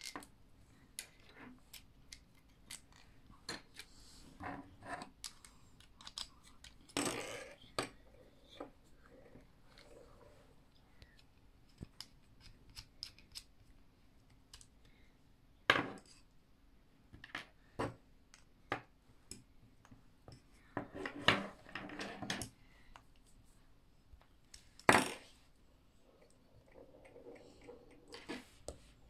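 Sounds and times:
plastic parts clicking and knocking: 5.0 - 8.0, 11.0 - 14.7.

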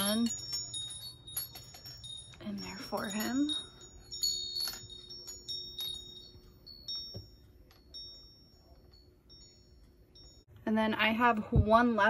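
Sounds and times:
light tinkling clinks: 0.0 - 10.5.

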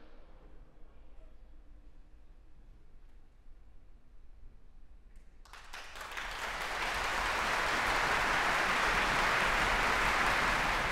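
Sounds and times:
audience applauding: 5.5 - 10.9.

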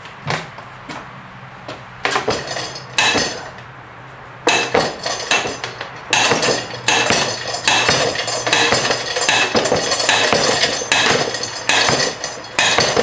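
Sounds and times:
metal bar clanking and scraping: 2.0 - 3.5, 4.5 - 13.0.

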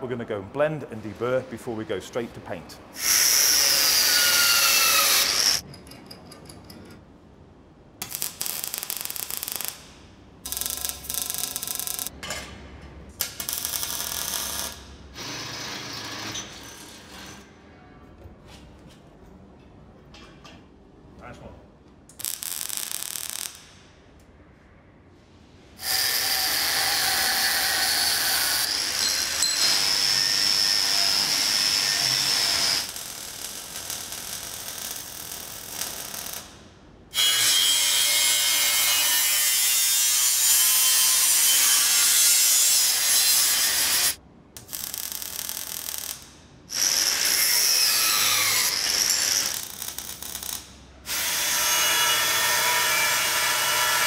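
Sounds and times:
mig welding crackling hiss: 22.1 - 23.8, 31.4 - 36.6.

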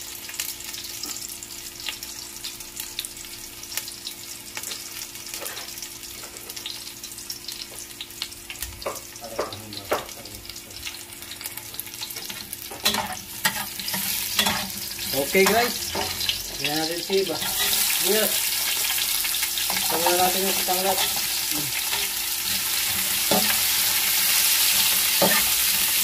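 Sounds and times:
garlic sizzling in hot oil: 0.0 - 26.0
metal spoon scraping a pot: 12.2 - 16.6, 17.3 - 18.0, 20.9 - 26.0.

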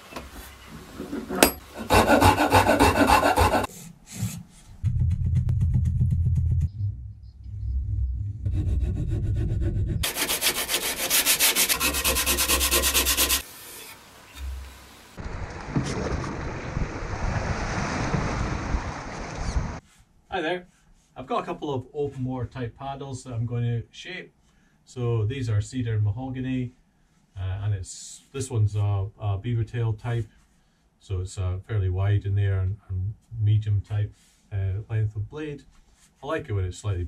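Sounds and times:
rubbing and scraping on wood: 0.2 - 4.5, 8.5 - 14.7
metal file rasping on wood: 1.2 - 4.4, 8.5 - 14.0
water splashing past canoe: 15.2 - 19.8.

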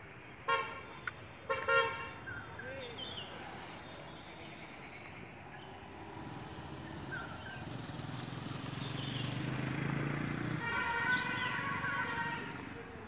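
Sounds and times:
small birds chirping: 2.1 - 9.7.

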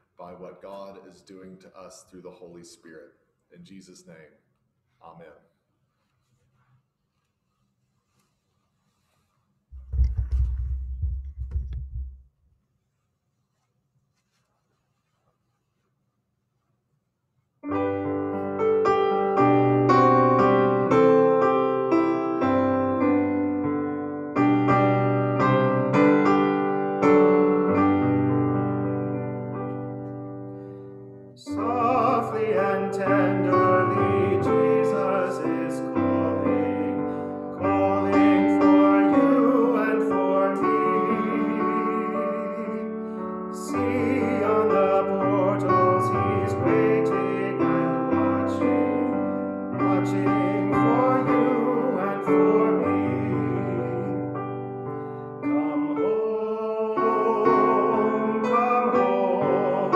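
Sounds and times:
piano accompaniment: 17.6 - 59.9
person singing with vibrato: 31.4 - 59.9.

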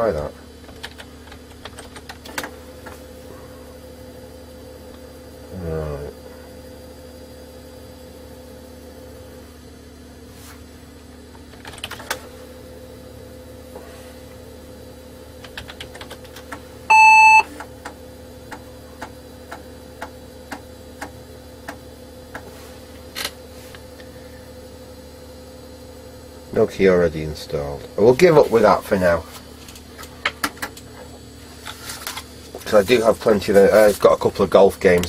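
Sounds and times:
computer steady hum: 0.0 - 23.0
keyboard keystrokes: 15.4 - 16.6
computer speaker square-wave beep: 16.9 - 17.5.

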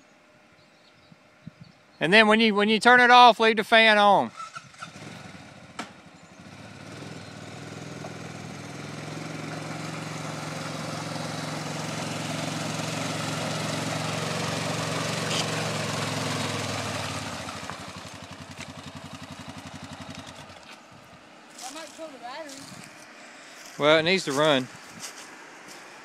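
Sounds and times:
quad bike engine in mud: 4.3 - 26.0
water sloshing around tyres: 12.0 - 19.7.

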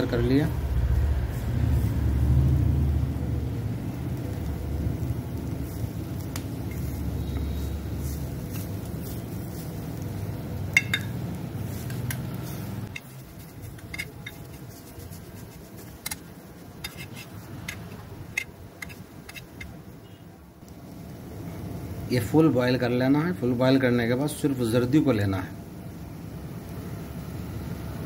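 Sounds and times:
metal spoon scraping frying pan: 10.7 - 19.8.

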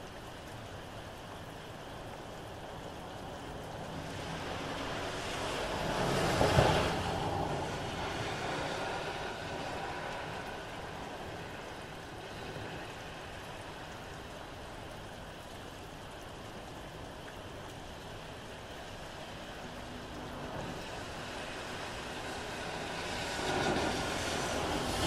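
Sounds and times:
steady rain: 0.0 - 25.0
car tyres hissing on wet road: 3.7 - 13.9, 18.4 - 25.0.

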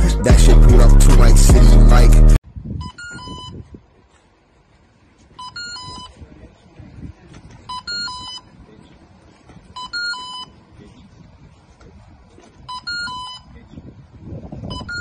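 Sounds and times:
phone electronic beeps: 2.8 - 3.6, 5.4 - 6.2, 7.6 - 8.6, 9.7 - 10.7, 12.6 - 13.6, 14.7 - 15.0.

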